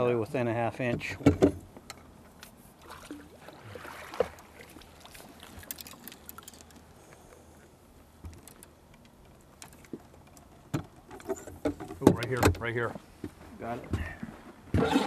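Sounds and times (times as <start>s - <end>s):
fishing gear clicks and knocks: 5.1s - 12.8s.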